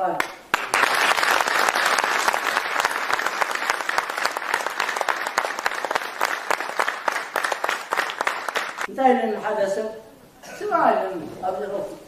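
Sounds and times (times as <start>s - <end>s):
audience applauding: 0.2s - 8.9s.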